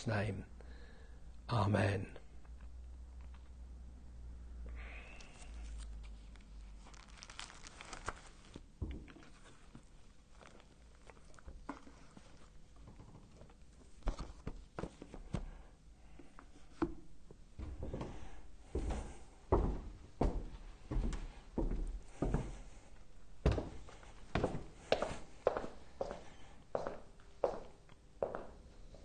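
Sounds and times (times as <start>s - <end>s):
papers rustling: 5.4s - 15.5s.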